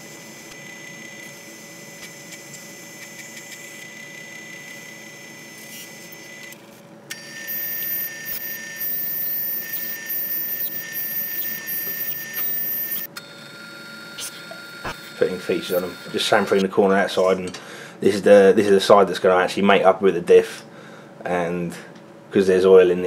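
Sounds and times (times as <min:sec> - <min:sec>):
high-pitched cutting squeal: 0:07.1 - 0:13.1, 0:14.2 - 0:16.6
metal lathe cutting steel: 0:07.1 - 0:13.1.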